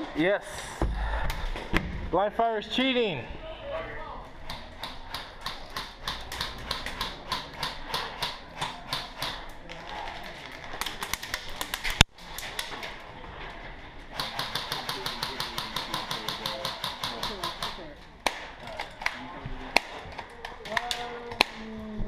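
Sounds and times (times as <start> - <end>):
airsoft guns firing: 14.1 - 18.5.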